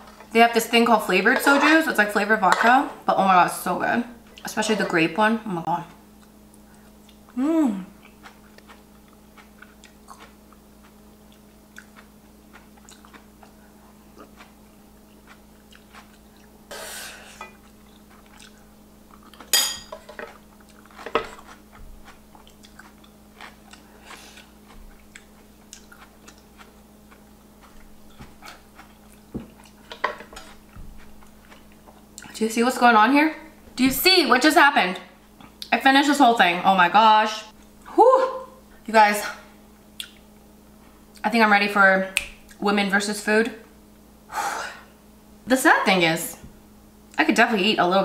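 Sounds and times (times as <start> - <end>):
faint steady hum: 0.0 - 48.0
quiet chewing: 5.7 - 16.6, 17.3 - 19.5, 20.1 - 32.4, 39.9 - 40.5.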